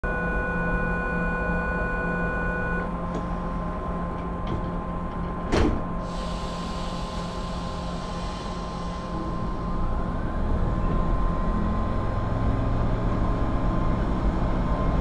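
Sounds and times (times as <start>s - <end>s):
train humming with tones: 0.0s - 15.0s
train doors slamming shut: 4.4s - 6.2s.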